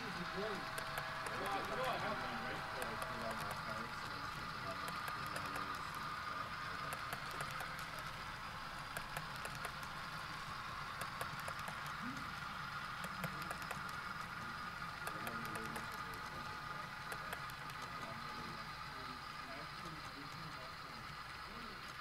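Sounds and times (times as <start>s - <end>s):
model train cars rolling: 0.0s - 22.0s
light irregular clicks: 0.6s - 1.8s, 4.8s - 6.0s, 6.8s - 8.0s, 8.8s - 10.0s, 10.9s - 12.3s, 13.0s - 14.3s, 15.0s - 16.4s, 17.0s - 18.1s.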